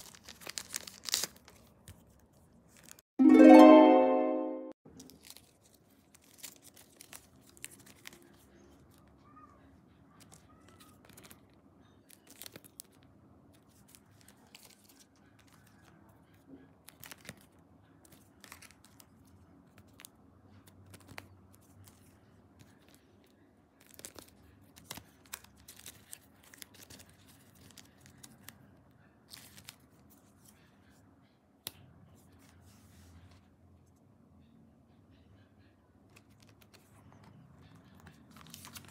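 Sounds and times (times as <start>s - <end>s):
plastic sleeves rustling: 0.0s - 3.0s, 38.0s - 38.9s.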